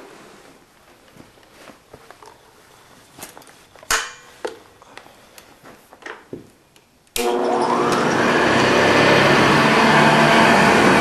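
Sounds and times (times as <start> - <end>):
vacuum cleaner motor whine: 7.2 - 11.0.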